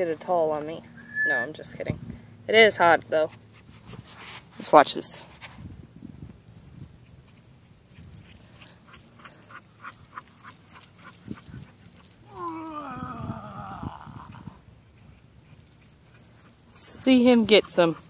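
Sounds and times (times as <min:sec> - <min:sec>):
dog whining: 0:12.3 - 0:14.6.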